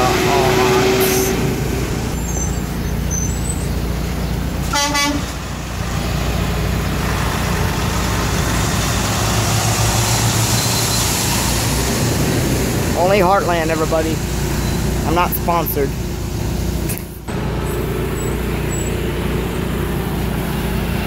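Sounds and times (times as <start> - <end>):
truck horn toot: 0.0 - 1.5, 4.6 - 5.4
diesel engine rumbling: 0.0 - 21.0.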